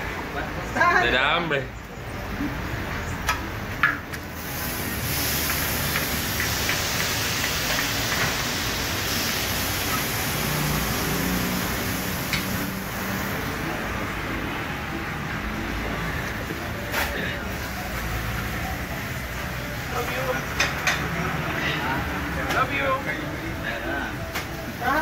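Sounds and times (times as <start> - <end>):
meat sizzling in a pan: 4.4 - 13.3.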